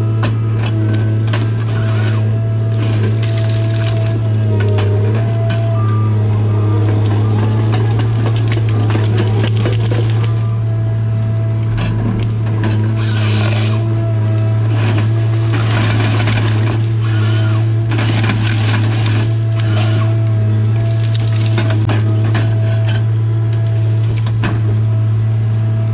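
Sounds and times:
harvester engine and hydraulics drone: 0.0s - 25.9s
wood stems cracking and crushing: 2.7s - 5.6s, 6.8s - 13.9s, 14.7s - 24.4s.

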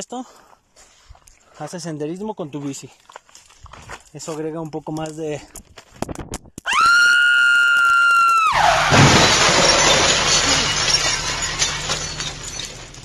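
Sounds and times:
glass shattering: 8.5s - 13.0s.

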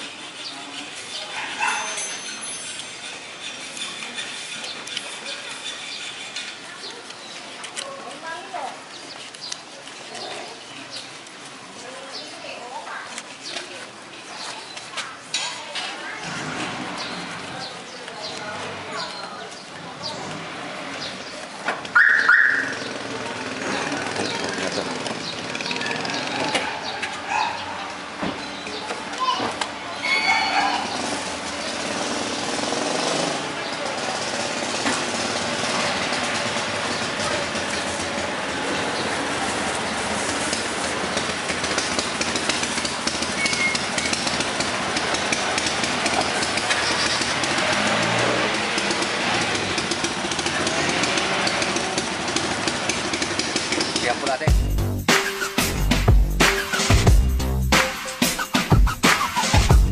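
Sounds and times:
street noise: 0.0s - 59.9s
engine running: 22.6s - 27.3s, 30.7s - 59.9s.

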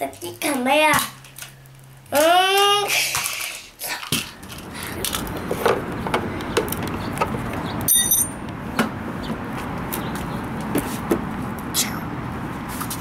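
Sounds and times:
outdoor background noise: 0.0s - 13.0s
high metallic ring: 7.9s - 8.4s.

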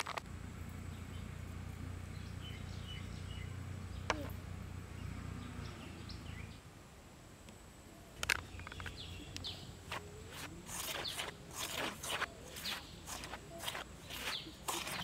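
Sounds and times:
birds chirping faintly: 0.2s - 15.0s
hand rubbing flour in steel bowl: 9.9s - 15.0s.

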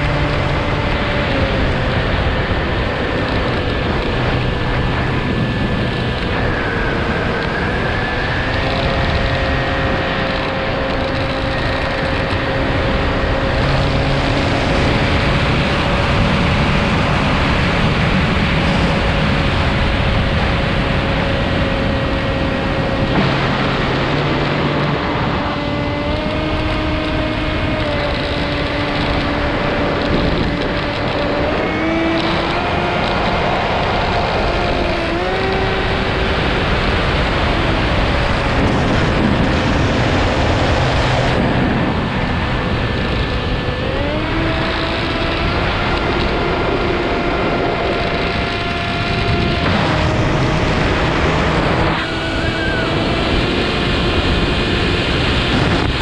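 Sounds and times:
heavy wind rush: 0.0s - 56.0s
model aircraft motor whine: 0.0s - 56.0s.

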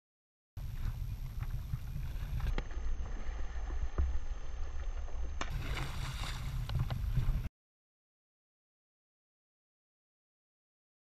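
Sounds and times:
water lapping around kayak: 0.6s - 7.5s
wind rumbling on microphone: 0.6s - 7.5s.

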